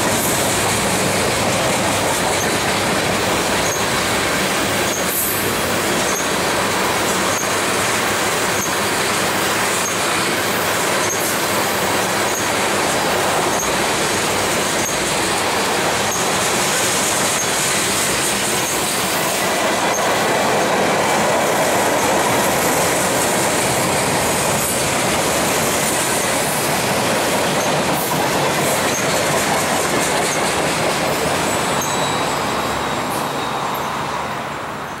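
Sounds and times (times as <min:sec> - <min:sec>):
freight train wheels rumbling: 0:00.0 - 0:35.0
faint high wheel squeal: 0:02.0 - 0:15.2, 0:16.0 - 0:20.7, 0:28.7 - 0:29.2, 0:30.2 - 0:35.0.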